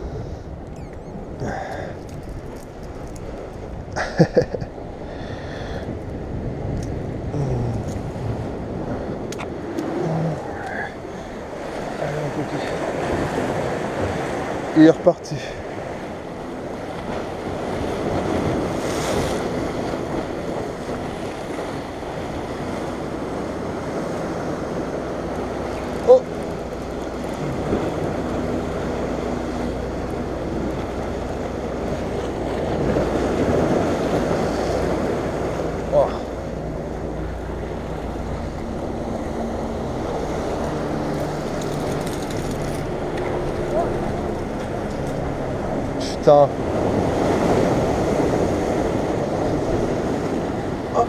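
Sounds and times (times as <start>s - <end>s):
wind buffeting microphone: 0.0s - 14.8s
waves breaking over rocks: 0.0s - 51.0s.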